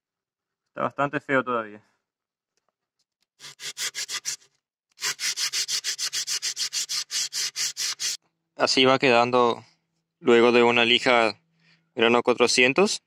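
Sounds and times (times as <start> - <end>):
sandpaper rubbing on steel blade: 3.4 - 8.2.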